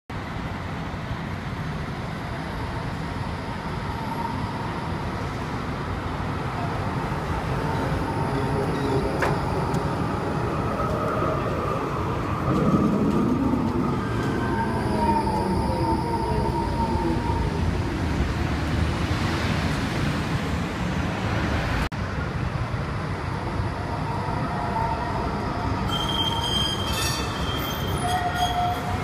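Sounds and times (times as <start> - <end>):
tram rumbling past: 0.3 - 29.0.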